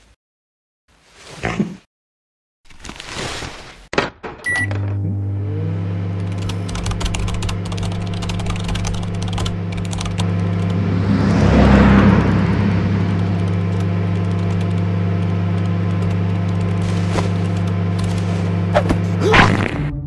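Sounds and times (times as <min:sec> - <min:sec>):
short electronic beep: 0:04.5 - 0:04.8
keyboard typing clicks: 0:06.2 - 0:10.8
low electrical hum: 0:06.2 - 0:19.2
rushing swell: 0:09.0 - 0:18.8.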